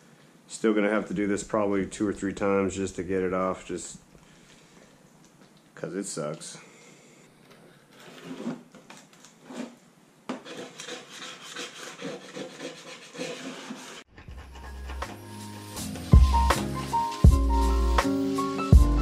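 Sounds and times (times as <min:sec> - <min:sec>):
scrub pad scraping surface: 0:08.0 - 0:08.7, 0:09.4 - 0:18.1
music: 0:14.3 - 0:19.0.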